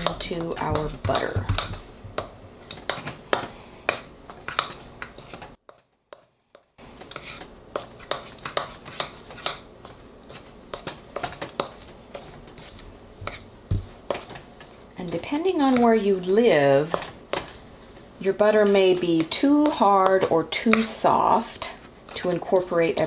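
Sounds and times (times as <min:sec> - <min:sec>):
hands kneading crumbly dough: 0:00.0 - 0:05.6, 0:06.9 - 0:23.0.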